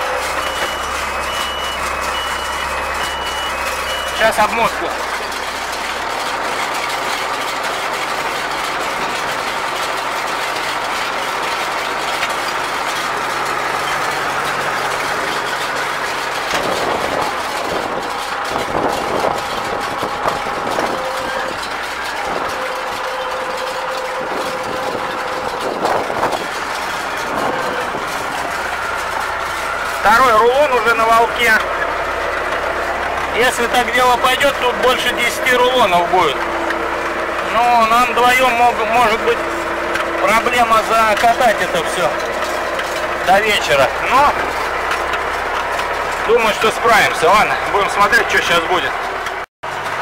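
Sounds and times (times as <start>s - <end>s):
round baler running: 0.0s - 50.0s
tractor engine: 0.0s - 50.0s.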